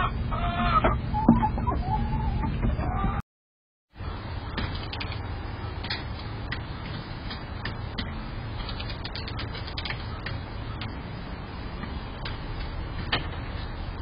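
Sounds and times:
chickens pecking on metal feeder: 4.5 - 11.0.

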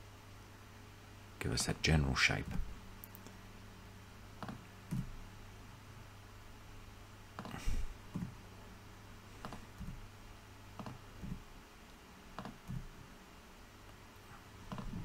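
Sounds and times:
faint low hum: 0.0 - 15.0
keyboard and mouse clicking: 10.8 - 11.0, 12.4 - 12.8.

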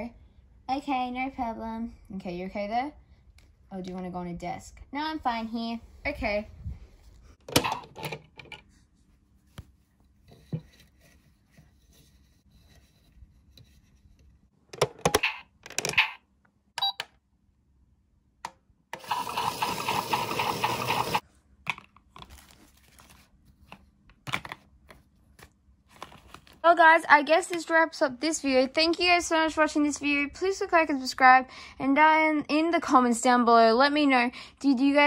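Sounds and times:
toy washing machine running: 19.0 - 21.2.

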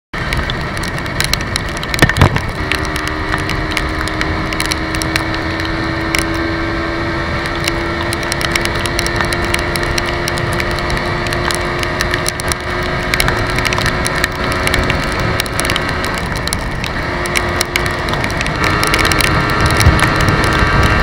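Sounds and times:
scattered crackles: 0.2 - 6.5, 7.3 - 21.0
wind noise on microphone: 0.2 - 21.0
motor scooter engine running: 0.3 - 21.0.

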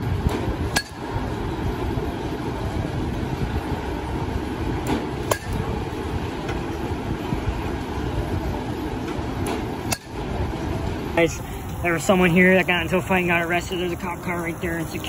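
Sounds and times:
steady low rumble: 0.0 - 15.0
metal bat hitting ball: 0.3 - 1.1, 4.8 - 5.7, 9.4 - 10.3.

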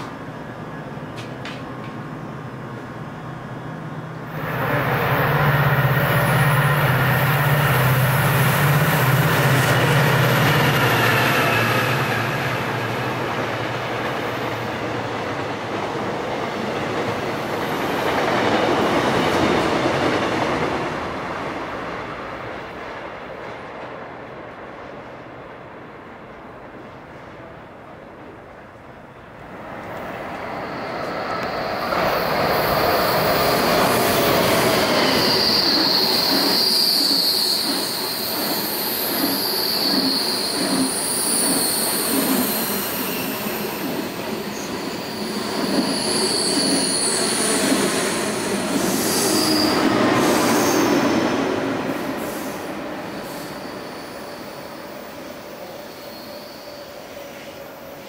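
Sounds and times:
train rumbling past: 0.0 - 58.0
high-pitched wheel squeal: 30.6 - 43.8, 44.6 - 51.2, 55.6 - 57.2.

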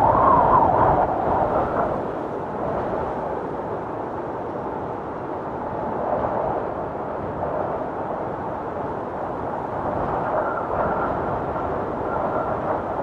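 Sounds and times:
faint high wind whistle: 0.0 - 3.5, 9.4 - 13.0
blizzard wind rushing: 0.0 - 13.0.

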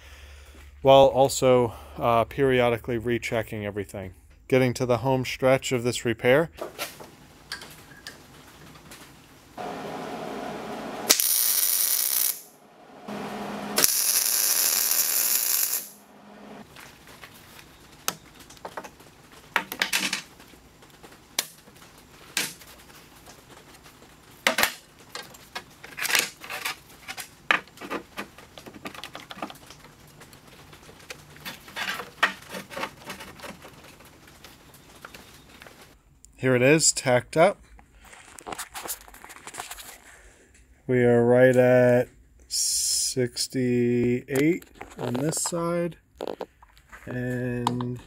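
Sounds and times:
welder arc noise: 9.6 - 16.6.

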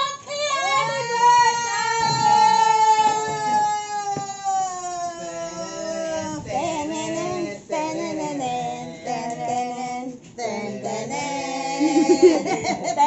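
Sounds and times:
voices singing long held notes: 0.0 - 12.6.

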